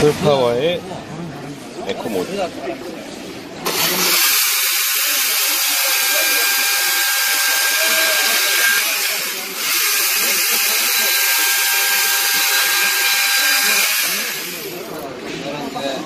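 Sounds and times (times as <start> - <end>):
chainsaw cutting log: 3.7 - 15.0.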